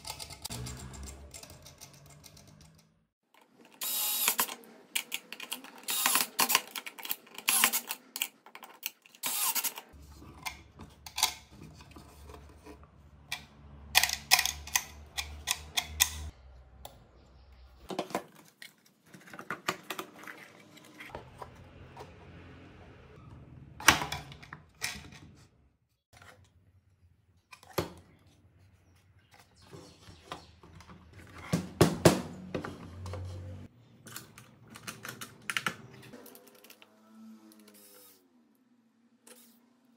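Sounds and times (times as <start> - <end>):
tools clicking and knocking: 0.0 - 3.0, 3.6 - 16.3.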